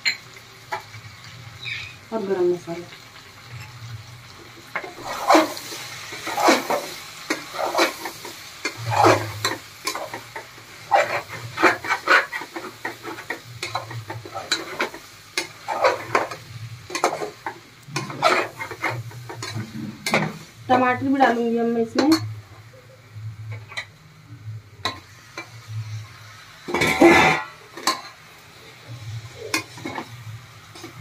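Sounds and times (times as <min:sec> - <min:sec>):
vegetables sizzling: 0:00.0 - 0:31.0
metal spoon scraping pot: 0:04.8 - 0:20.3.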